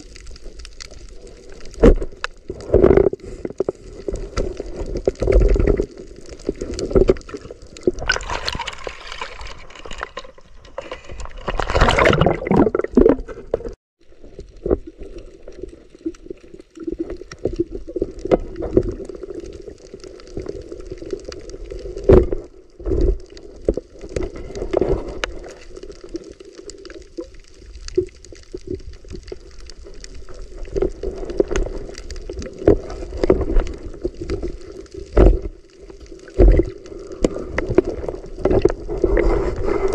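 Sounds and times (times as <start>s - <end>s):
muffled underwater sounds: 0.0s - 39.9s
rushes of water: 0.0s - 39.9s
knocks and gurgling: 1.8s - 13.8s, 36.3s - 36.8s.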